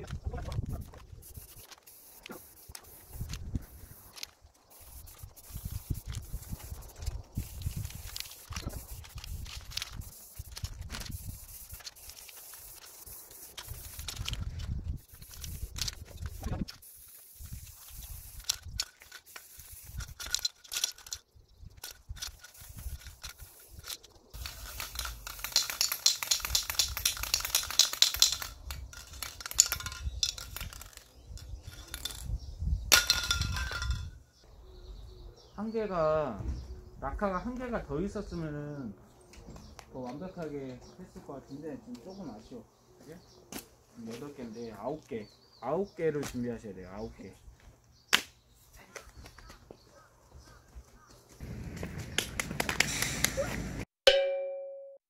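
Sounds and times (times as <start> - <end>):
spray can mixing ball rattling: 0.4 - 21.2, 21.8 - 32.3, 32.9 - 34.0
spray can hissing: 0.6 - 21.2, 21.8 - 31.0, 52.8 - 53.5.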